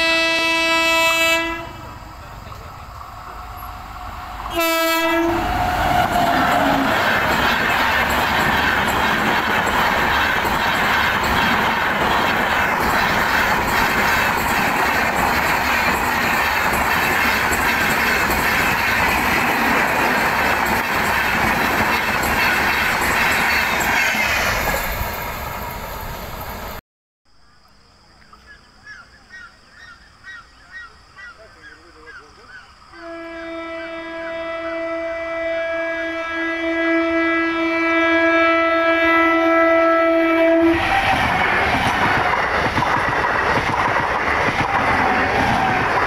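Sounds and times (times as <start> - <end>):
train horn: 0.0 - 2.1, 4.5 - 7.6, 32.9 - 42.1, 45.0 - 46.0
train rumble: 0.0 - 26.8, 39.6 - 46.0.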